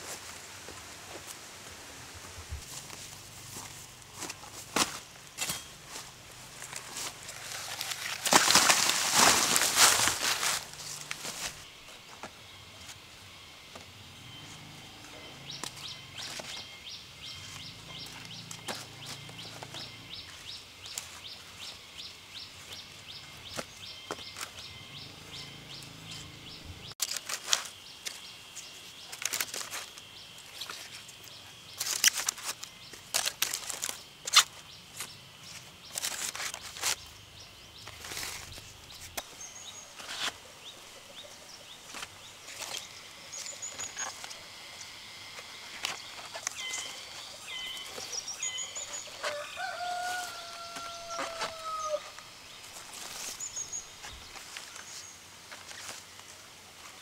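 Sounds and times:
bamboo shoots knocking and rustling: 0:02.2 - 0:13.9, 0:17.4 - 0:21.9, 0:22.5 - 0:24.7, 0:27.0 - 0:37.2, 0:37.8 - 0:40.9, 0:41.8 - 0:44.5, 0:45.3 - 0:57.0
bird chirps: 0:36.9 - 0:44.9, 0:45.9 - 0:55.2.

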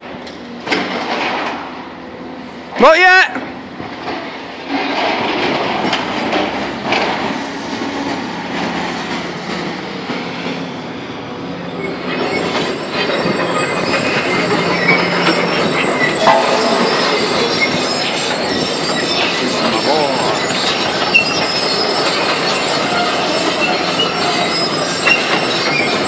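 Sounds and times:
excavator engine running: 0:00.0 - 0:02.8, 0:03.4 - 0:26.0
steel frame screeching and clanking: 0:04.0 - 0:26.0
sharp metal knocks: 0:16.2 - 0:17.5.

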